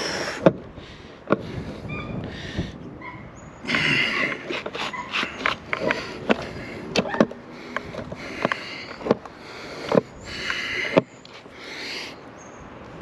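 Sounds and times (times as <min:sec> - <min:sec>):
skateboard wheels rolling: 0:03.7 - 0:11.6.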